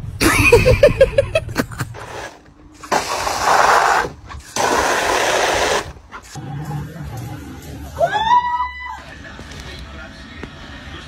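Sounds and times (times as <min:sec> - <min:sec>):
hose nozzle spraying water: 0:02.0 - 0:06.0.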